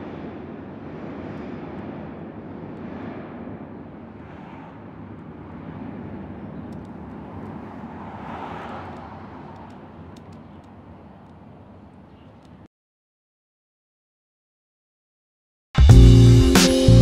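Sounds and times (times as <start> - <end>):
traffic rumble: 0.0 - 12.7.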